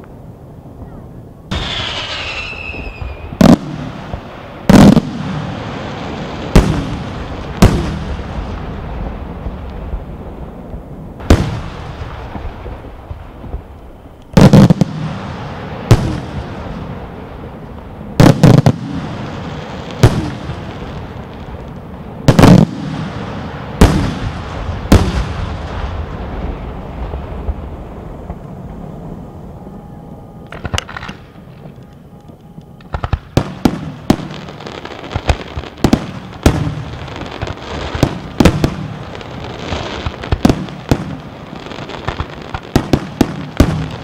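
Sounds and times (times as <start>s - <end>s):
firework shells bursting with echo: 1.5s - 8.5s, 30.4s - 41.4s.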